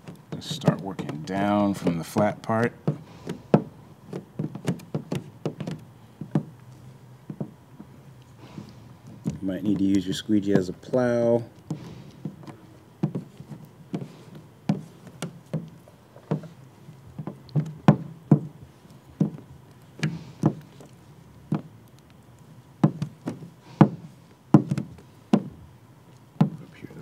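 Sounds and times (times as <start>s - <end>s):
squeegee knocking and dragging on film: 0.0s - 6.6s, 7.2s - 7.9s, 8.6s - 22.0s, 22.8s - 25.6s, 26.4s - 26.6s.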